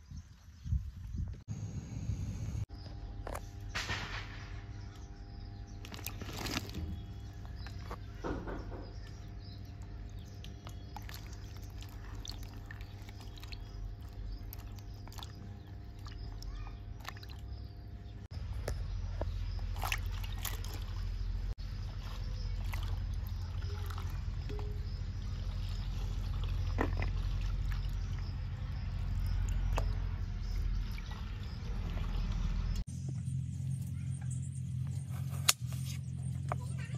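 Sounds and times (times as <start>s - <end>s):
steady low hum: 0.7s - 36.9s
water sloshing: 5.8s - 32.8s.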